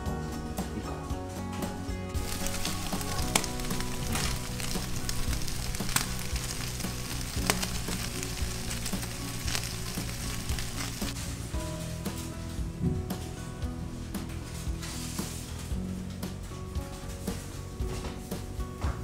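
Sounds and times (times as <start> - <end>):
crackling pops: 2.2 - 11.2
food sizzling in skillet: 2.2 - 11.3.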